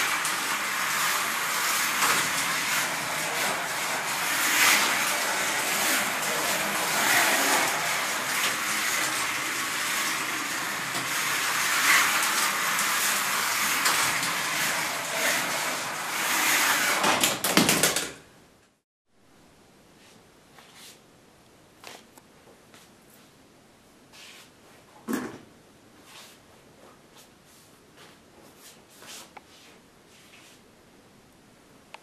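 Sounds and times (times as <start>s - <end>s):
slot cars whirring and rattling: 0.0s - 18.1s.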